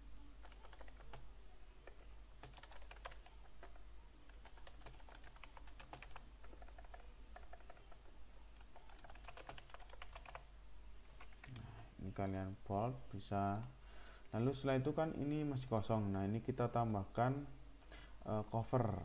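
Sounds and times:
computer keyboard typing: 0.4s - 10.5s, 11.2s - 12.4s.

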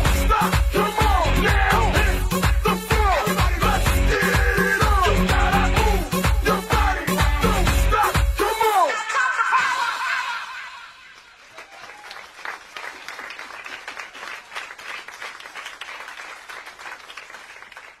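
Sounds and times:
dance music: 0.0s - 11.2s
crowd clapping and applauding: 11.0s - 18.0s.

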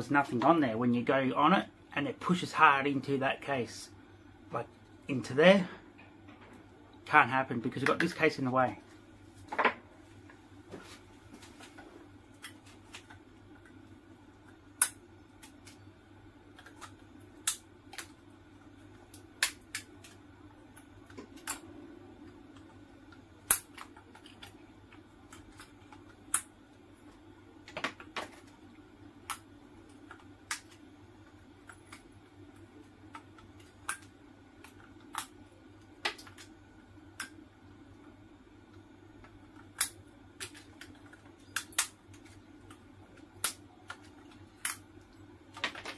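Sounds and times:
steady low hum: 0.0s - 45.9s
metallic clicks and snaps: 16.5s - 18.2s, 31.6s - 35.4s, 38.7s - 42.8s, 43.4s - 44.9s.

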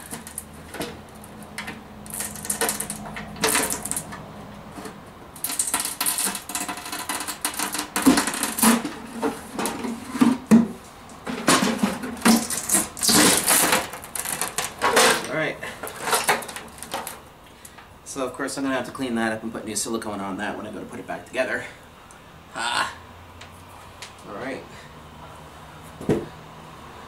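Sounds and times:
plastic cover being pried off: 1.6s - 4.2s, 5.4s - 9.0s, 11.4s - 17.2s.

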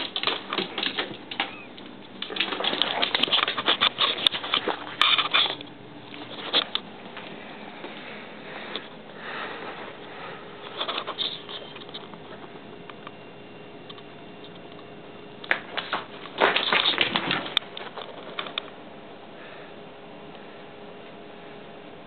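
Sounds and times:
cat scrabbling and clattering: 0.0s - 6.8s, 15.5s - 18.7s
paper rustling and scraping: 2.3s - 5.6s, 10.7s - 12.0s, 15.6s - 18.6s.

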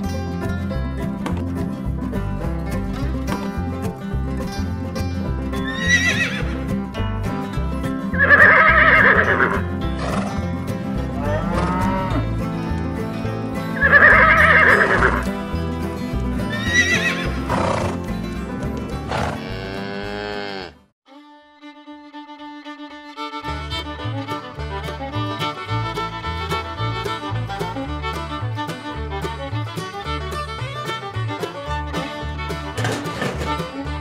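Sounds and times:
background music: 0.0s - 20.8s, 21.6s - 34.0s
horses whinnying: 5.6s - 6.6s, 8.1s - 10.3s, 11.2s - 12.3s, 13.8s - 15.3s, 16.5s - 18.0s, 19.0s - 20.8s.

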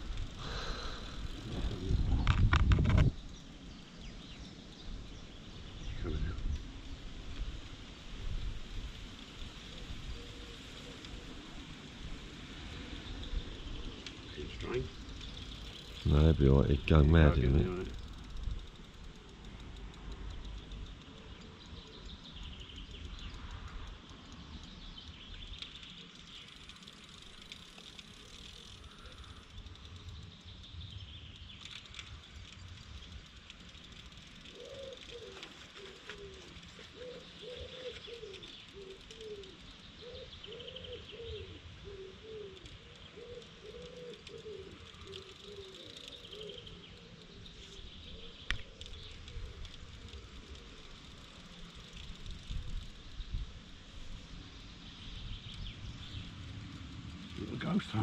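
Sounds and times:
small birds chirping: 0.0s - 7.6s, 9.7s - 58.0s
wind on microphone: 1.1s - 3.3s
dove cooing: 34.5s - 47.2s.

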